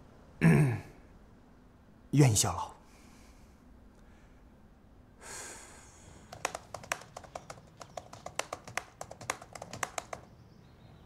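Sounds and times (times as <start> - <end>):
typing on laptop keyboard: 6.3 - 10.3.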